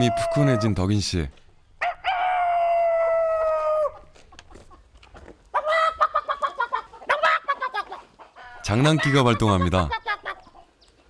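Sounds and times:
rooster crowing: 1.8 - 4.1.

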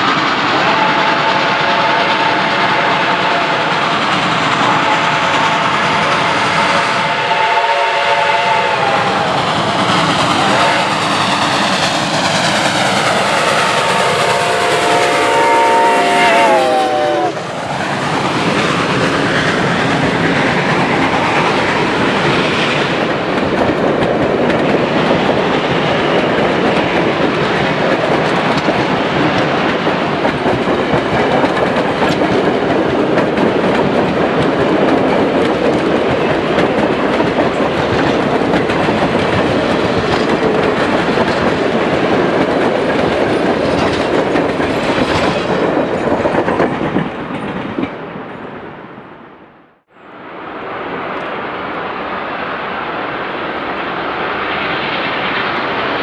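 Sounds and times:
train cars rolling over rails: 0.0 - 48.8
train horn blasts: 0.6 - 3.7, 4.6 - 9.4, 10.4 - 11.0, 13.7 - 17.4.

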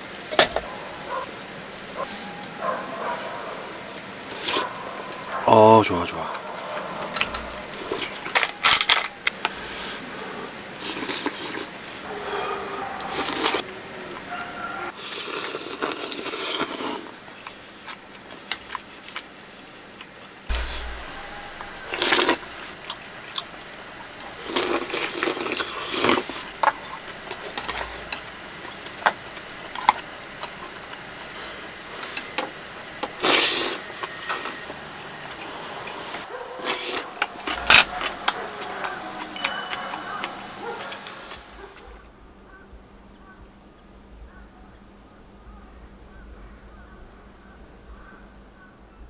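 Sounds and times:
spoon and cookware clicking: 39.4 - 40.4.

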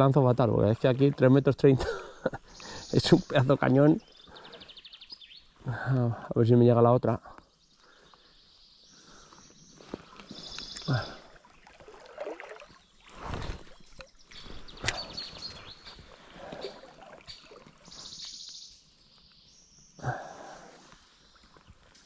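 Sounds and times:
river water sloshing around legs: 9.2 - 19.4, 20.7 - 22.0.

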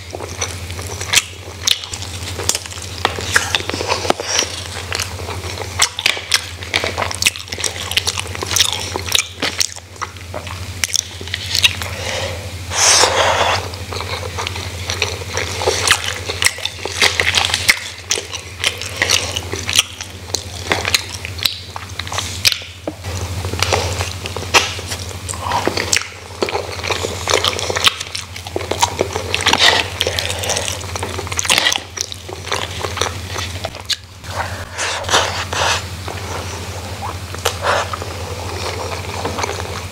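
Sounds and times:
steady low hum: 0.0 - 39.9
wet chewing and lip smacks: 13.5 - 39.9.

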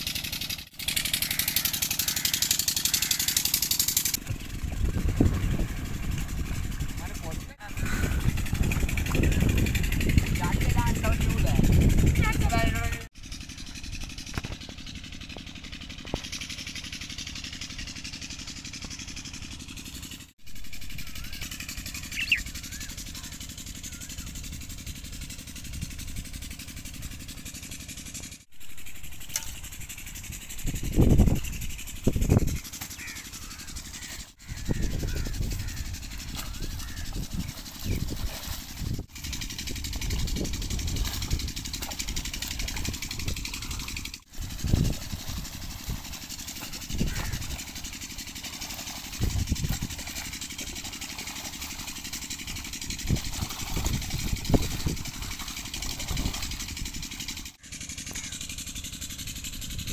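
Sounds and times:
low engine hum: 0.0 - 59.9
outdoor noise: 0.0 - 59.9.

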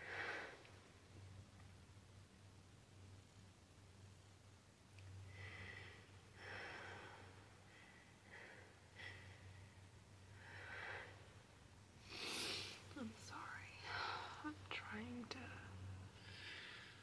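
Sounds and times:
low electrical hum: 0.0 - 17.0
woman sniffling: 12.1 - 12.8.

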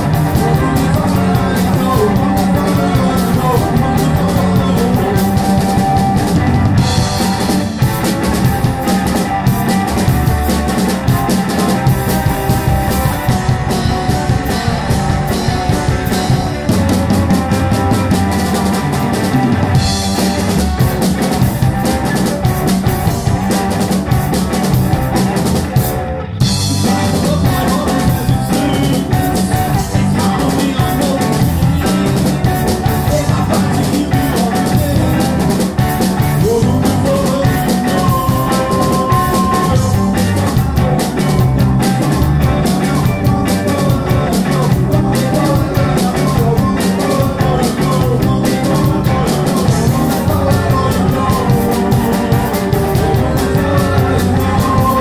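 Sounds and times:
rock band playing: 0.0 - 55.0.

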